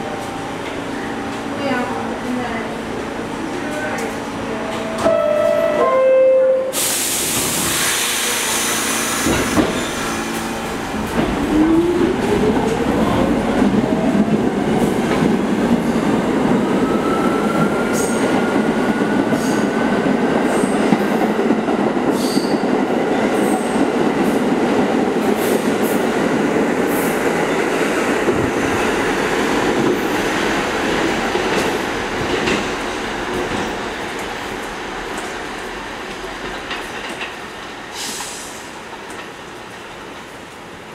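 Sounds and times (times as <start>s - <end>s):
hissing air burst: 6.7s - 10.2s
train wheels rumbling on rails: 6.7s - 40.9s.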